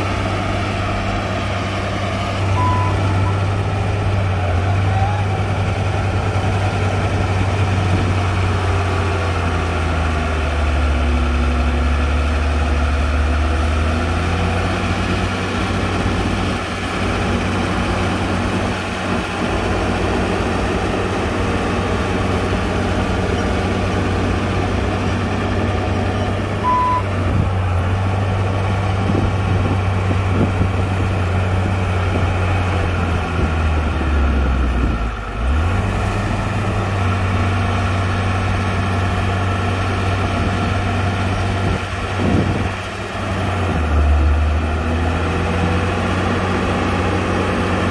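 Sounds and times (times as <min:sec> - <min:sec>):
diesel machine engine running: 0:00.0 - 0:47.9
short high beep: 0:02.4 - 0:03.5, 0:26.6 - 0:27.1.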